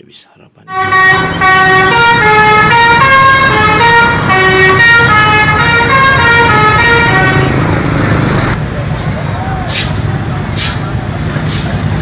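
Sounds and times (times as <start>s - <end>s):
musical bus horn melody: 0.7s - 7.7s
engines and traffic rumble: 0.7s - 12.0s.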